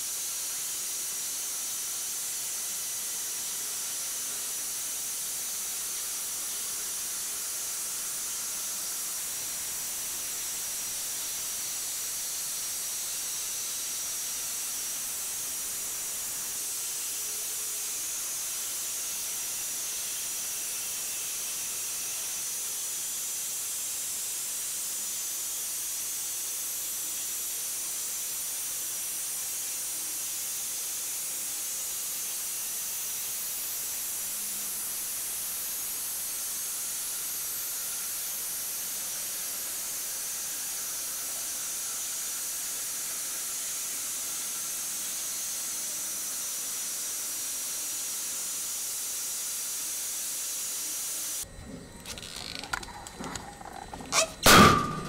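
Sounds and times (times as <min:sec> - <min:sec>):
bandsaw blade cutting wood: 0:52.2 - 0:55.0.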